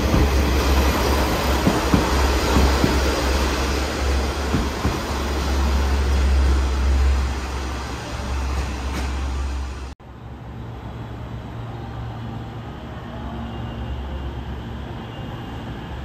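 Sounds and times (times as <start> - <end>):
train wheels clicking over rail joints: 0.0 - 3.5, 4.1 - 5.4
diesel railcar engine drone: 0.0 - 16.0.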